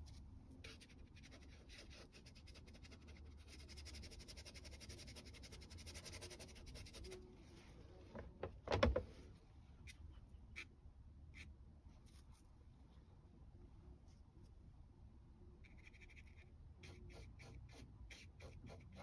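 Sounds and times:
brush scratching on paper: 0.0s - 7.2s, 15.6s - 19.0s.

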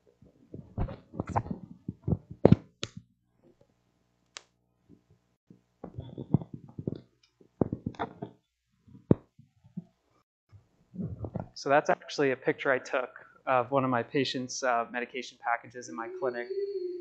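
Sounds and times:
microphone handling knocks and thumps: 0.6s - 3.0s, 5.8s - 7.0s, 7.6s - 8.3s, 11.0s - 11.6s.

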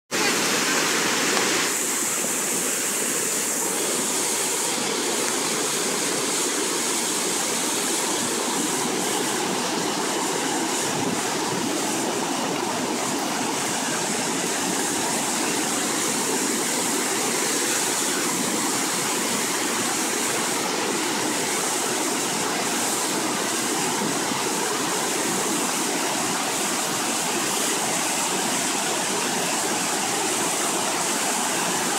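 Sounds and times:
river rushing over a weir: 0.1s - 31.9s.

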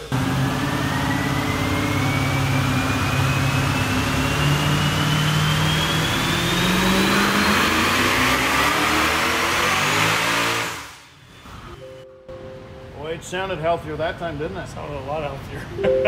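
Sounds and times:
engine revving under load: 0.0s - 11.7s.

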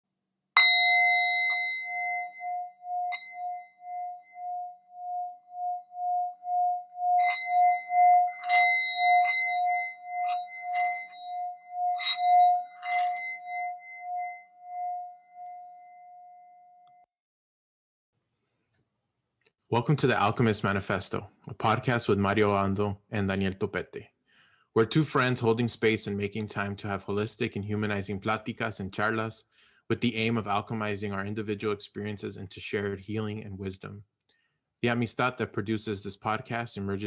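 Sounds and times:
singing bowl ringing: 0.6s - 17.1s
bell-like strikes: 7.2s - 15.0s.

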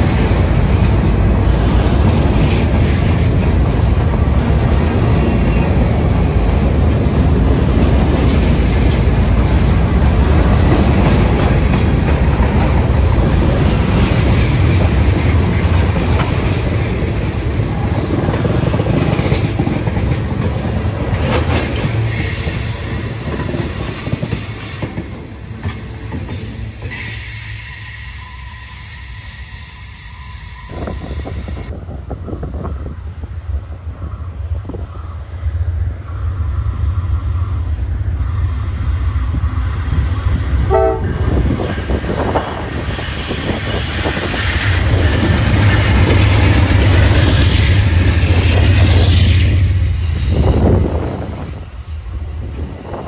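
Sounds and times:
train wheels clattering on rails: 0.0s - 28.1s, 30.7s - 53.0s
thin wheel squeal: 21.9s - 31.7s.

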